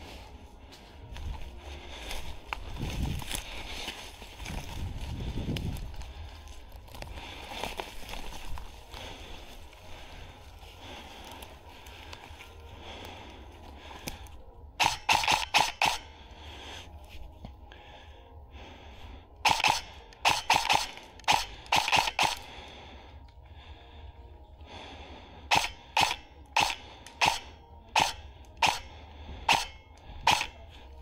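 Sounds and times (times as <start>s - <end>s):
airsoft gun firing single shots: 14.8s - 16.0s, 19.4s - 22.4s, 25.5s - 28.9s, 29.5s - 30.6s.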